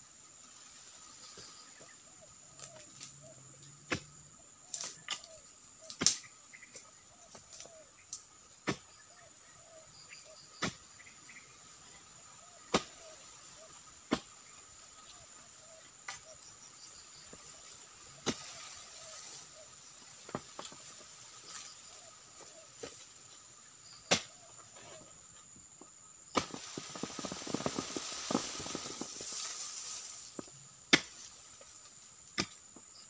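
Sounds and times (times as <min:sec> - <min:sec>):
high insect drone: 0:00.0 - 0:33.0
chisel chopping into palm trunk: 0:24.1 - 0:24.3, 0:26.3 - 0:26.6, 0:30.9 - 0:31.2.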